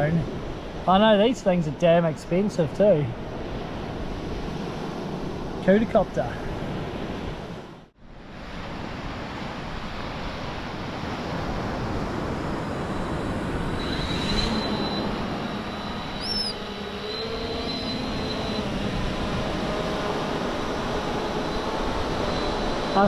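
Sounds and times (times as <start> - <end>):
noisy rush: 10.6 - 23.0
drone rotors whining: 12.4 - 23.0.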